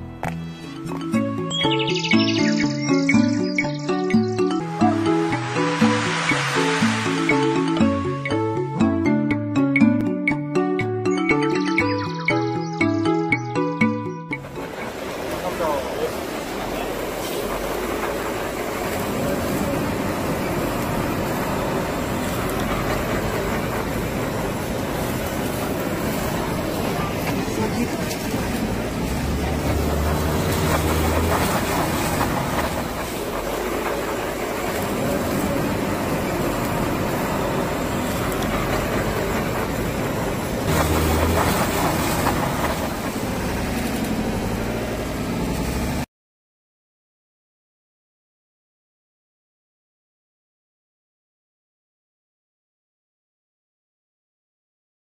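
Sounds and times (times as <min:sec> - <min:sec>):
food sizzling: 0:04.6 - 0:08.7, 0:16.5 - 0:43.5
flame whoosh: 0:05.0 - 0:08.3
gas torch hissing: 0:05.0 - 0:08.3
blowtorch flame roaring: 0:05.1 - 0:07.8, 0:14.6 - 0:46.0.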